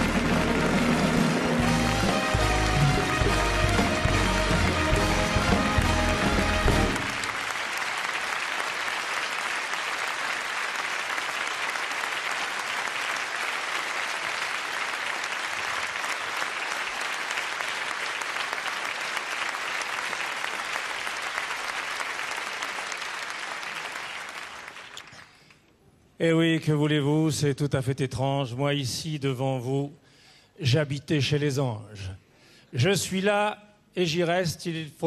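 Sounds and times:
live band music: 0:00.0 - 0:07.4
audience applauding: 0:00.0 - 0:25.5.

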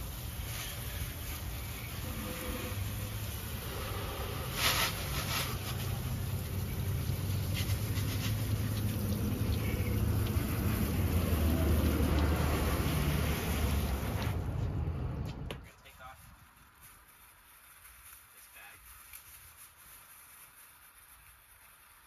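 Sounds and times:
short loud hiss: 0:00.0 - 0:06.4
steady low rumble: 0:00.0 - 0:16.2
hose water splashing on engine: 0:00.0 - 0:22.0.

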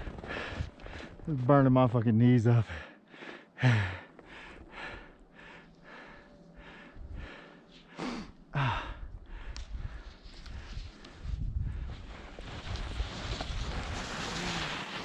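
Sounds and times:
person breathing hard: 0:00.0 - 0:01.2, 0:02.7 - 0:12.0.

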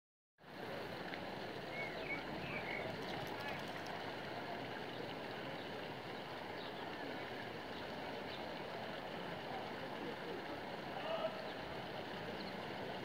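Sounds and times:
water washing in shallow stream: 0:00.5 - 0:13.0
dog wading through water: 0:01.7 - 0:04.5.

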